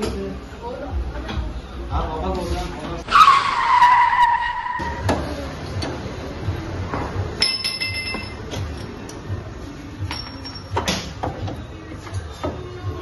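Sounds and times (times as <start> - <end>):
faint workshop sounds: 0.0 - 3.3, 4.5 - 13.0
tyre screech: 3.0 - 5.4
ringing metallic clink: 7.4 - 8.5, 10.0 - 11.0.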